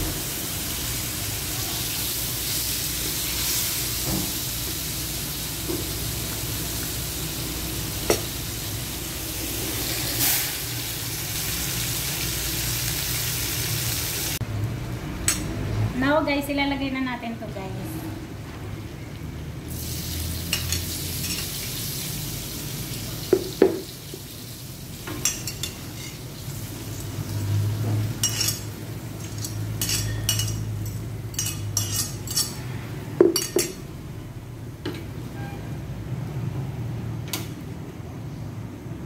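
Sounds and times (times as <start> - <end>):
food sizzling in a pan: 0.0 - 14.4, 19.7 - 32.0
utensils clinking and scraping: 28.2 - 33.8.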